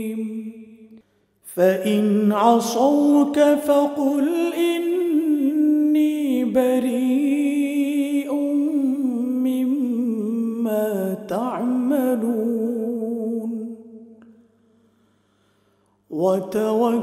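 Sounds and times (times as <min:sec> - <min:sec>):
man chanting recitation: 0:16.1 - 0:17.0.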